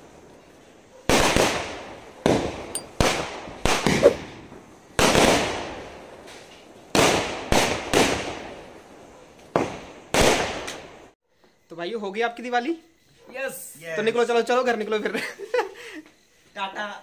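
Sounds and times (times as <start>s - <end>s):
fireworks bangs echoing: 1.1s - 11.1s.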